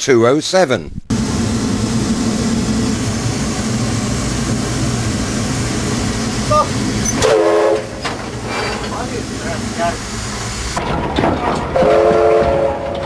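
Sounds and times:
steam locomotive roar: 0:01.1 - 0:13.0
short voice: 0:06.5 - 0:06.8.

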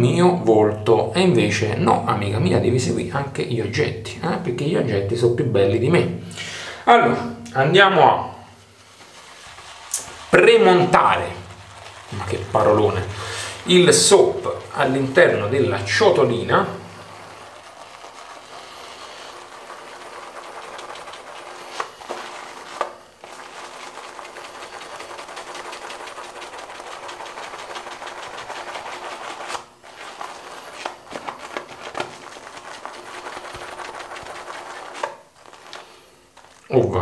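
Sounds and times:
shaving brush swishing in bowl: 0:08.3 - 0:36.8.

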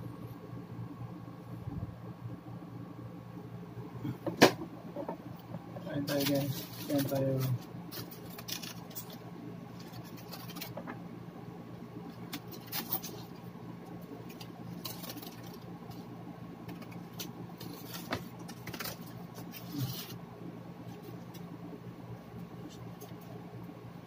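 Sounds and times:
low hum: 0:00.0 - 0:24.0
foil wrapper crinkling: 0:06.0 - 0:10.9, 0:12.2 - 0:13.4, 0:14.2 - 0:16.1, 0:16.7 - 0:20.2.

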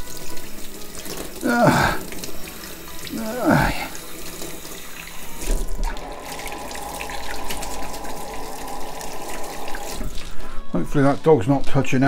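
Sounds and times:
tap water running into sink: 0:00.0 - 0:10.4.

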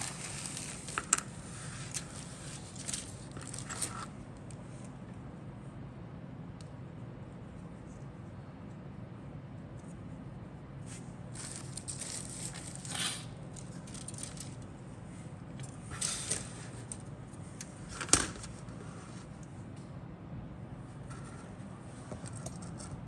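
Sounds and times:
plastic parts rustling and scraping: 0:00.0 - 0:04.2, 0:10.9 - 0:14.7.

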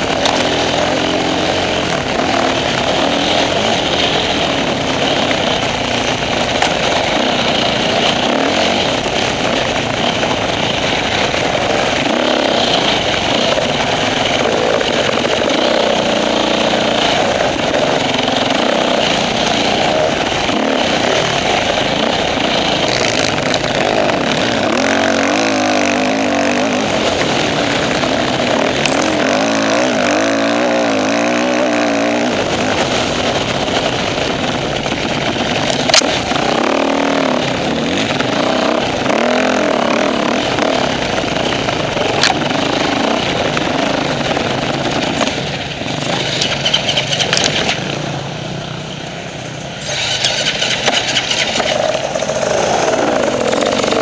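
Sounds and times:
dirt bike engine revving: 0:00.0 - 0:48.9, 0:49.6 - 0:54.0.

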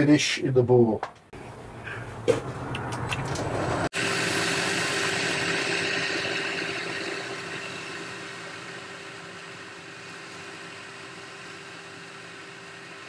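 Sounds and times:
lathe machine hum: 0:03.5 - 0:13.0
tool hissing as it cuts metal: 0:04.0 - 0:09.6.

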